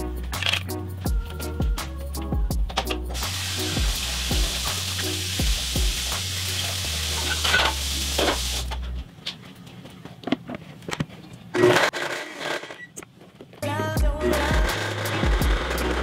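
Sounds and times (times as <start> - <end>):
music with stepping bass line: 0.0 - 7.0, 13.6 - 16.0.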